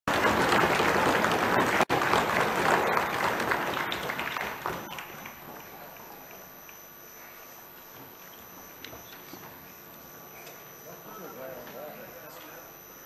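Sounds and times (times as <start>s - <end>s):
many hands clapping: 0.1s - 6.8s.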